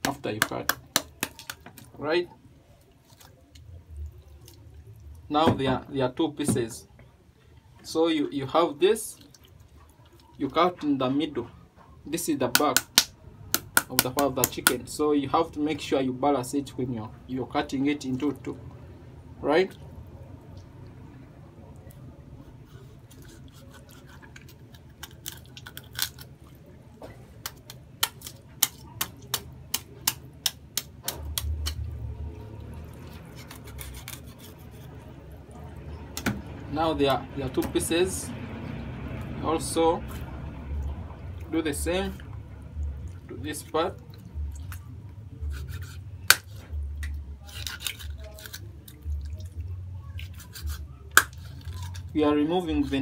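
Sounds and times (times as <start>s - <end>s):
knife cracking through chicken: 23.1s - 26.3s, 27.4s - 31.8s, 33.0s - 34.9s, 45.5s - 48.7s, 50.2s - 52.1s.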